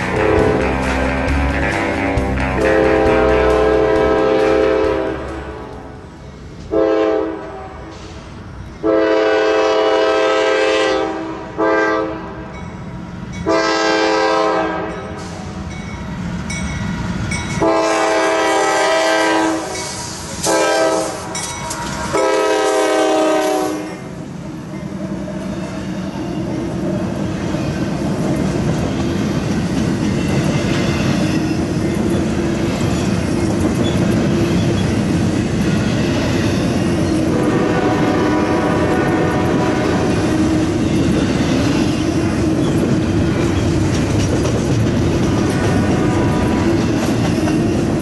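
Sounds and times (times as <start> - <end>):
locomotive air horn blasts: 0.0 - 0.8, 2.5 - 5.8, 6.7 - 8.0, 8.8 - 12.4, 13.4 - 15.2, 17.6 - 24.2, 37.3 - 40.2, 45.5 - 46.6
train rumbling: 0.0 - 48.0.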